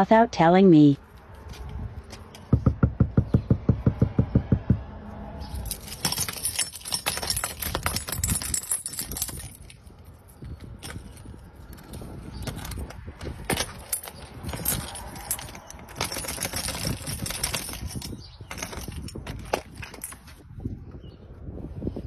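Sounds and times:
fast knocking on door: 0:02.5 - 0:04.9
keys jangling: 0:05.4 - 0:20.5.

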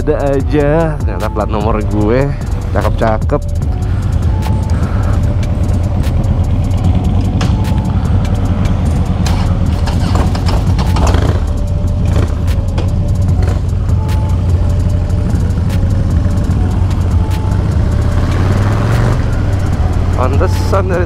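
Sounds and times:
motorcycle engine throbbing: 0:00.0 - 0:21.0
clicks and rattles: 0:09.2 - 0:11.2.

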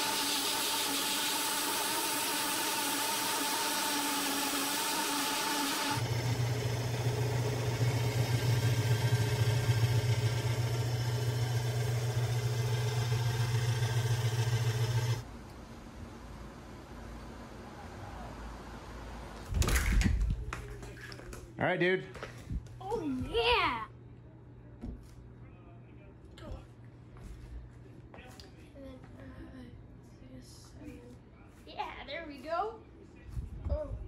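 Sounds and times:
belt grinder sanding: 0:00.0 - 0:15.2
drill press low hum: 0:00.0 - 0:15.3.

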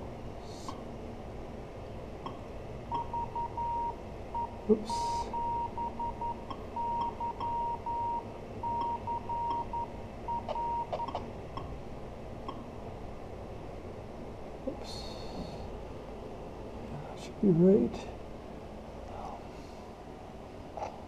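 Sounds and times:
morse code tone: 0:03.0 - 0:11.2.

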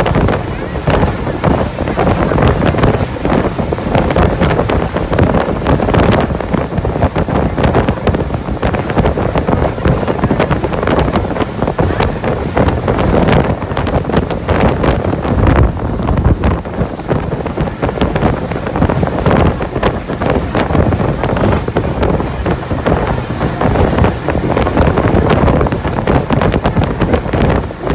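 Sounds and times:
boat motor: 0:00.0 - 0:27.9
water against boat hull: 0:00.0 - 0:27.9
wind buffeting microphone: 0:00.0 - 0:27.9.

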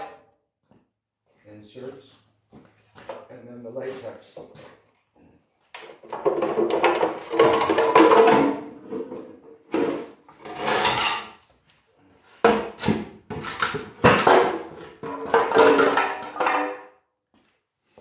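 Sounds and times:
fiberglass scraping and creaking on concrete: 0:08.8 - 0:12.3.

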